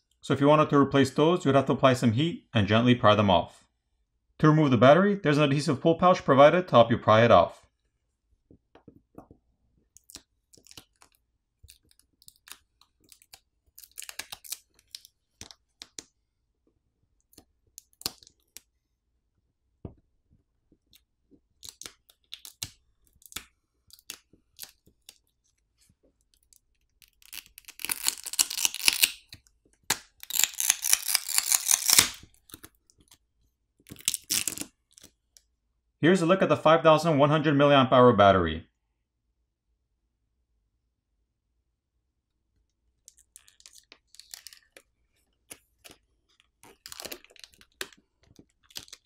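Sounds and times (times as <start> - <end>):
adhesive crackling and tearing: 9.9 - 16.0, 17.2 - 18.7, 20.9 - 25.4, 26.2 - 33.2, 33.8 - 35.2, 43.0 - 49.0.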